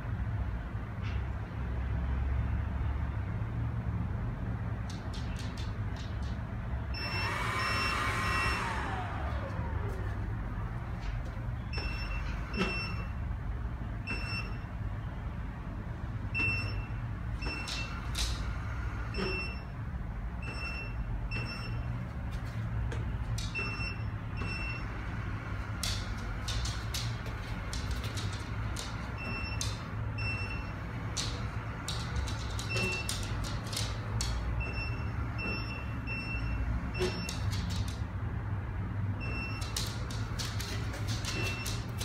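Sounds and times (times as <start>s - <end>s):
robot vacuum humming: 7.1s - 9.9s.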